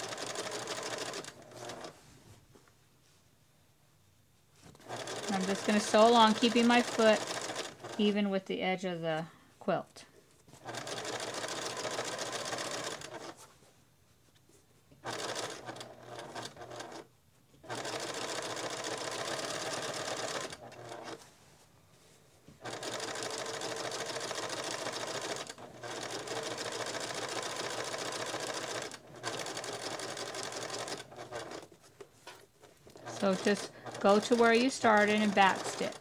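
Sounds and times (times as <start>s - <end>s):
electric sewing machine stitching: 0.0s - 2.0s, 4.7s - 8.2s, 10.6s - 13.4s, 15.0s - 21.2s, 22.6s - 31.7s, 32.9s - 36.0s.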